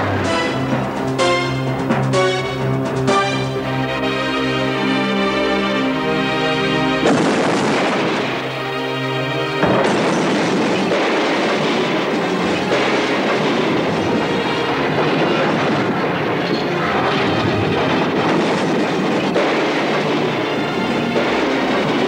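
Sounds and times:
dramatic music: 0.0s - 22.0s
sudden crash: 7.0s - 8.6s, 9.6s - 20.4s.

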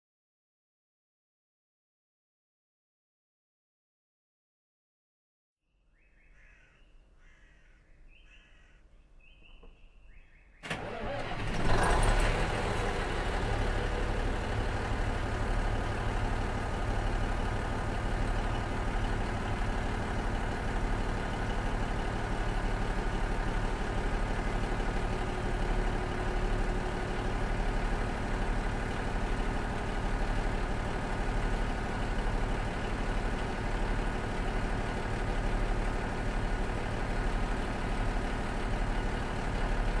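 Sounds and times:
diesel engine starting and idling: 10.6s - 40.0s.

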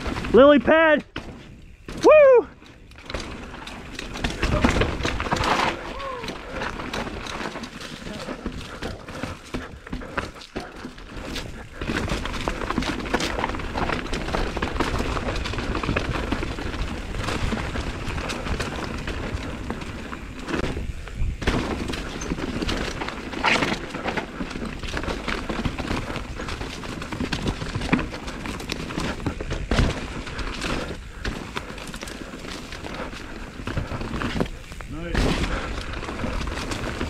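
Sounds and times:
bike knocking and clattering: 0.0s - 37.0s
tyre rumble on dirt: 2.9s - 37.0s.

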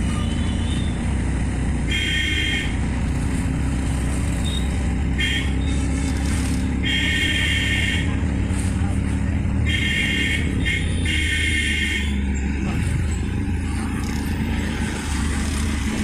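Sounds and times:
vehicle engine and road rumble: 0.0s - 16.0s
vehicle horn honking: 1.9s - 2.8s, 4.4s - 5.7s, 6.8s - 8.2s, 9.6s - 12.2s.

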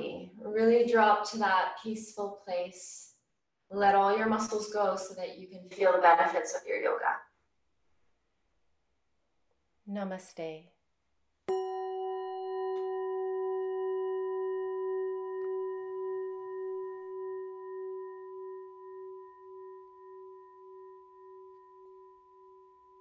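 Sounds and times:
singing bowl ringing: 11.5s - 23.0s.

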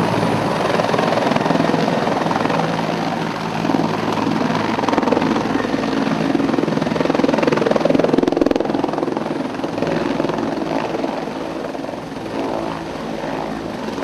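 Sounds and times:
helicopter high whine: 0.0s - 14.0s
helicopter rotor chopping: 0.0s - 14.0s.

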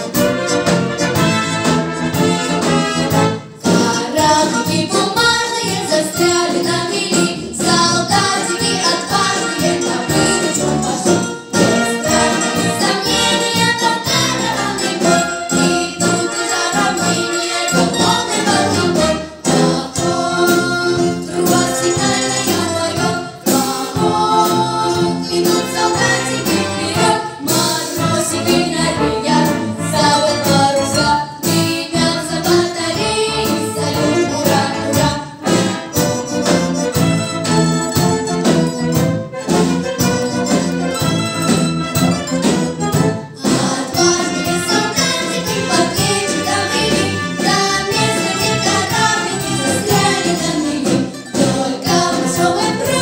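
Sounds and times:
military brass band: 0.0s - 4.8s, 8.1s - 32.1s, 33.0s - 53.0s
children singing in unison: 3.6s - 36.0s, 43.4s - 53.0s.

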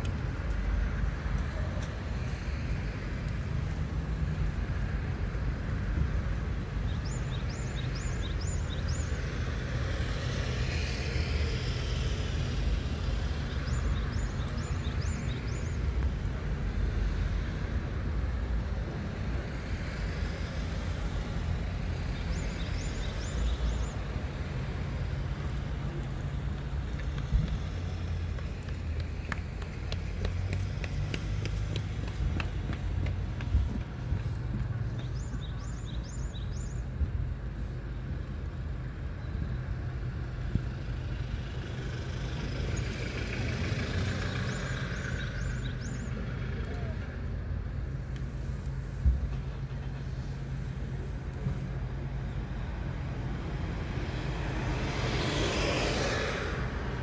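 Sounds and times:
low vehicle hum: 0.0s - 57.0s
low outdoor rumble: 31.8s - 57.0s.

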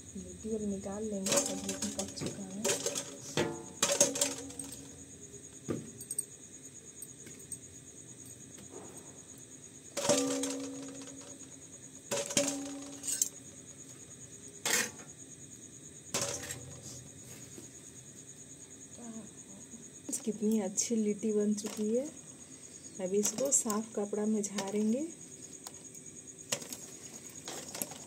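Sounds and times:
knocks and clinks on steel plate: 1.2s - 4.9s, 10.0s - 11.4s.

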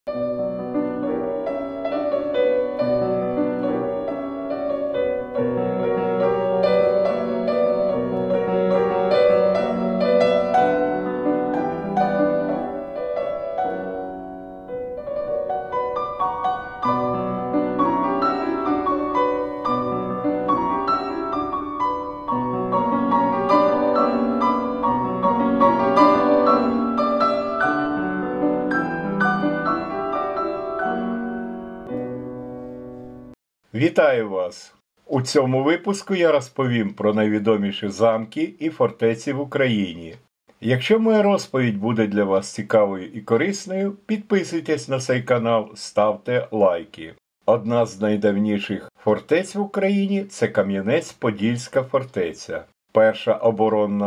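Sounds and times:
piano background music: 0.1s - 33.4s.

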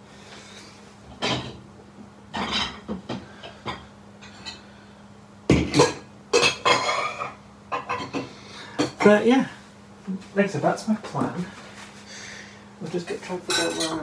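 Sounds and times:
dishes clattering: 1.1s - 1.6s, 2.3s - 4.6s, 5.5s - 9.1s, 13.5s - 14.0s.

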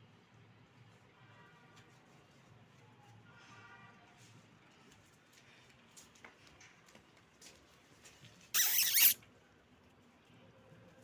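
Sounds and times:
puppy squealing: 8.6s - 9.2s.

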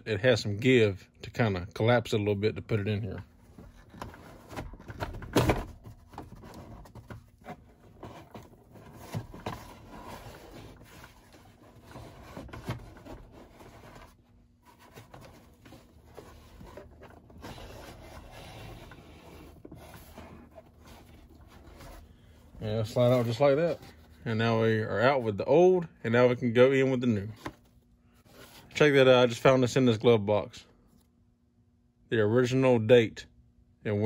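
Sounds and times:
cardboard rubbing and crinkling: 3.4s - 24.3s.

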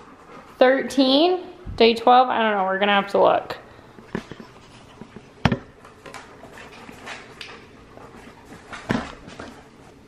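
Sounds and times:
dog panting: 0.0s - 1.2s, 6.3s - 10.0s.

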